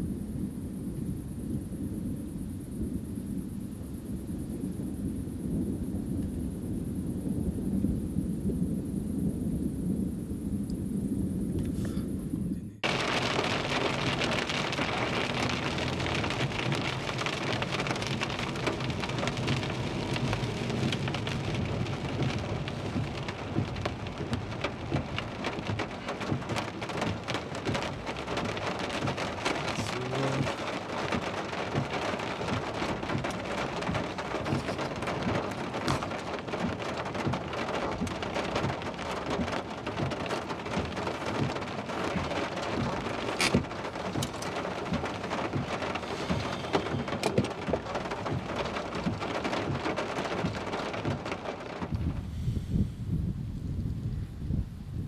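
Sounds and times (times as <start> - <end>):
thunder rumbling: 0.0 - 55.0
heavy rain falling: 11.6 - 53.5.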